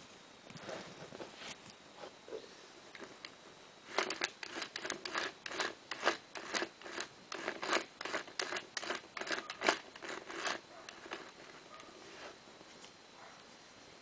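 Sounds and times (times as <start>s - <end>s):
plastic toy mechanism rasping clicks: 3.9s - 11.6s.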